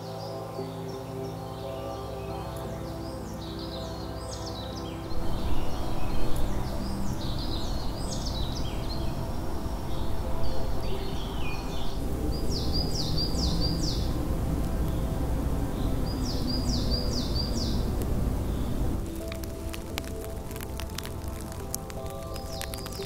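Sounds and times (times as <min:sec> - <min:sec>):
birds singing: 0:00.0 - 0:23.0
low rushing noise: 0:05.0 - 0:23.0.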